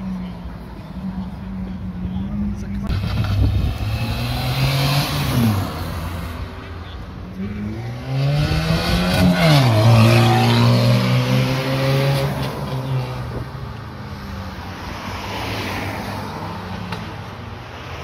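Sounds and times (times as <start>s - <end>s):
car accelerating and passing: 2.9s - 6.6s, 7.3s - 18.0s.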